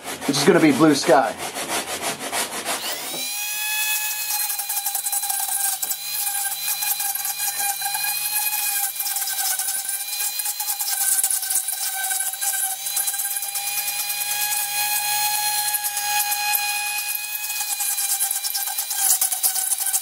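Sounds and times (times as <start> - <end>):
sanding rub: 0.0 - 3.2
drill bit scraping: 2.6 - 20.0
electric drill whining: 2.8 - 20.0.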